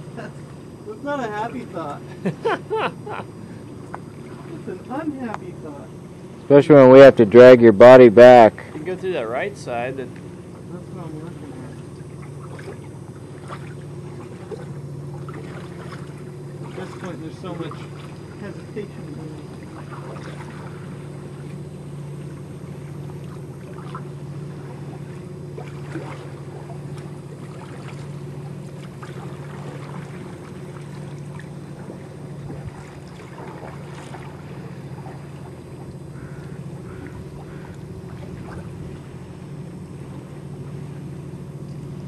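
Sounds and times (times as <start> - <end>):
steady low hum: 0.0 - 42.0
kayak paddle dipping in water: 3.3 - 5.4, 11.3 - 42.0
water splashes and drips: 11.6 - 20.8, 23.1 - 36.0, 37.0 - 39.2.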